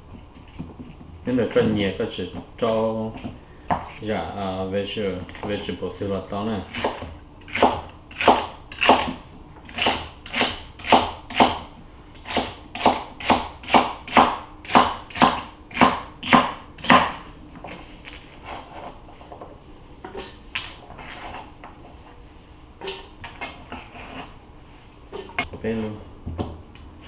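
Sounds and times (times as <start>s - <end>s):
cleaver chopping on cutting board: 6.8s - 17.2s.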